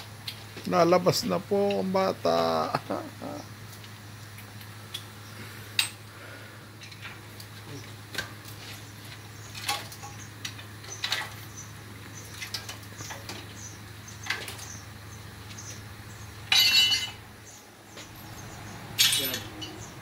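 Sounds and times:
steady low hum: 0:00.0 - 0:20.0
metal clinks and knocks: 0:16.5 - 0:17.2, 0:18.0 - 0:19.9.

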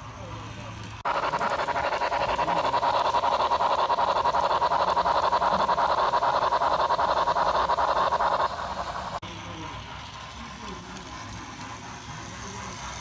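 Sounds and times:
model steam locomotive chuffing: 0:00.0 - 0:13.0.

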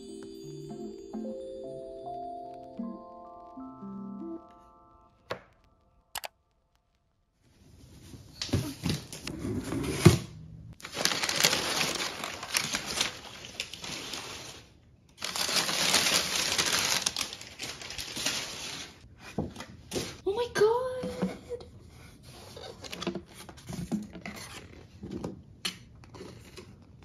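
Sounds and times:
packing paper rustling and crinkling: 0:10.8 - 0:19.1.

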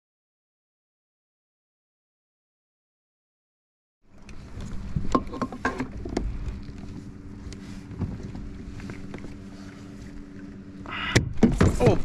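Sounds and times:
water noise: 0:04.0 - 0:12.0
wind: 0:04.0 - 0:12.0
steady low hum: 0:04.1 - 0:12.0
knocks on kayak hull: 0:11.1 - 0:12.0.

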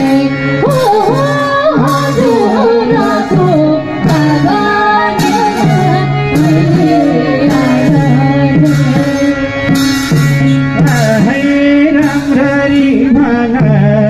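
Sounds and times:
person singing: 0:00.0 - 0:09.7
harmonium chords: 0:00.0 - 0:14.0
high percussive accent: 0:00.0 - 0:14.0.

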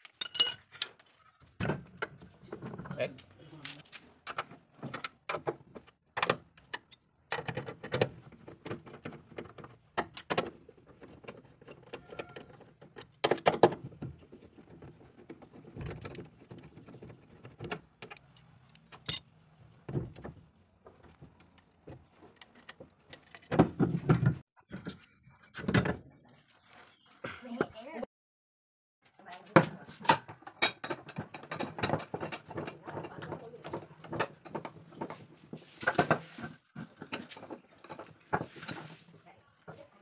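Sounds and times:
tool clattering: 0:00.0 - 0:01.2
metallic clinks and rattles of tools: 0:00.0 - 0:01.3, 0:18.1 - 0:19.3.

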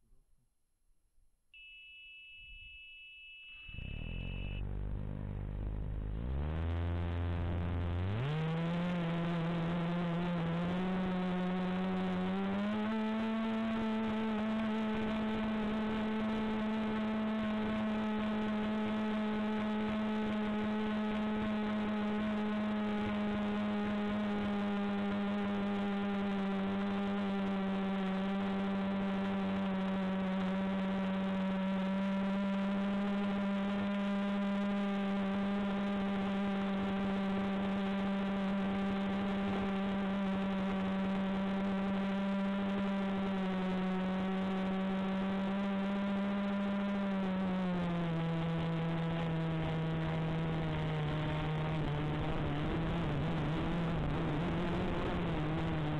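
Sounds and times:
drone propellers humming: 0:03.7 - 0:08.4.

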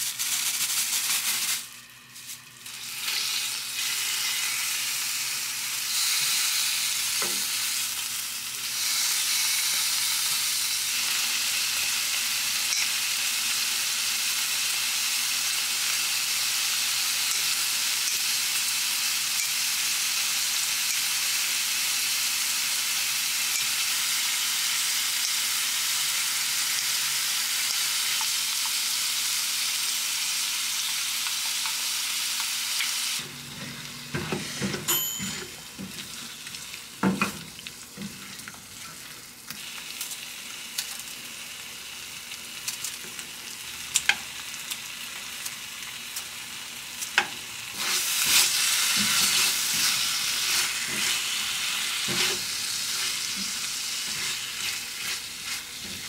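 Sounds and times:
meat and onion sizzling in a pan: 0:00.0 - 0:56.0
spatula scraping a pan: 0:47.8 - 0:56.0.

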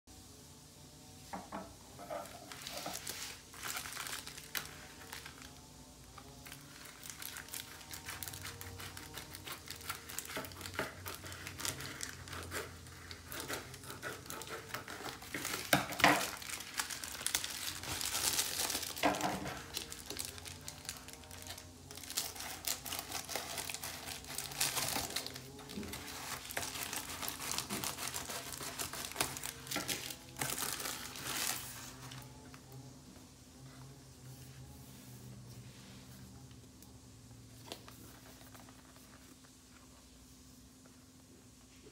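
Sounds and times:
plastic mailer crinkling: 0:02.1 - 0:32.7
scissors cutting plastic: 0:06.4 - 0:31.7.

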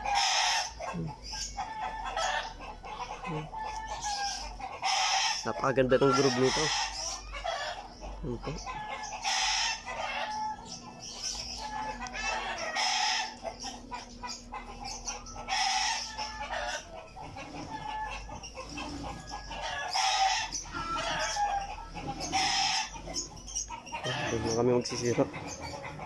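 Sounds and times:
chickens clucking: 0:00.0 - 0:26.0
rooster crowing: 0:03.3 - 0:07.0, 0:12.0 - 0:13.4, 0:15.5 - 0:23.0.

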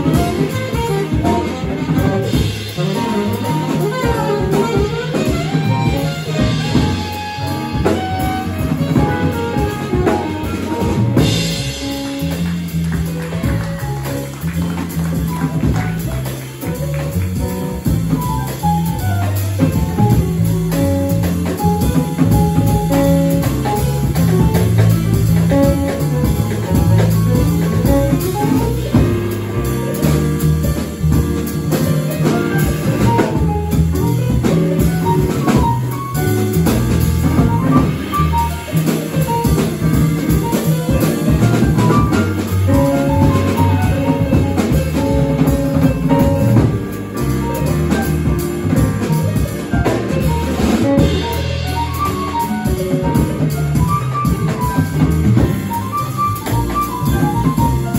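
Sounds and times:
saxophone: 0:00.0 - 0:11.5
drum kit: 0:00.0 - 0:57.9
piano: 0:00.0 - 0:57.9
upright bass: 0:00.0 - 0:57.9.

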